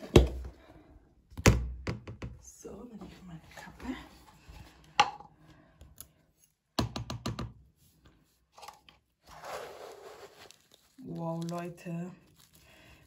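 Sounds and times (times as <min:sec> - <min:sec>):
scoop scraping washing powder: 0:08.6 - 0:11.2.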